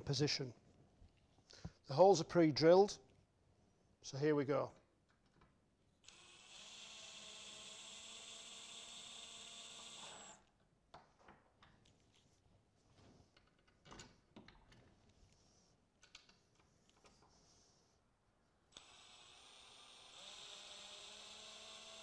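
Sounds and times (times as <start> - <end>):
cordless drill driving screw: 6.0 - 10.5, 18.7 - 22.0.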